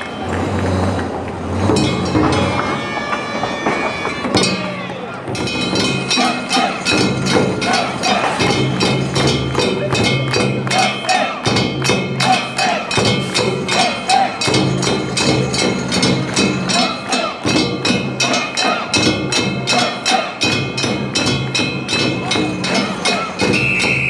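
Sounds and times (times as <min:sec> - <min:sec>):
ringing metal percussion: 0:00.0 - 0:24.0
voices: 0:00.0 - 0:24.0
drum beating: 0:00.1 - 0:24.0.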